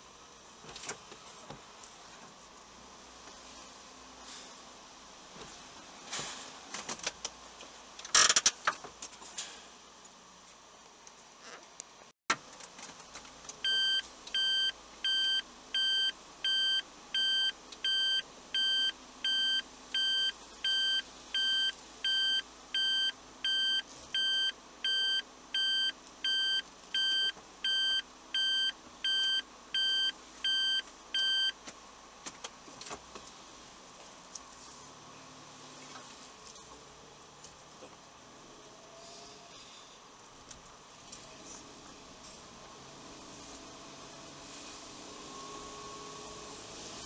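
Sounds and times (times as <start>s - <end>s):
vehicle reversing beeper: 13.6s - 31.6s.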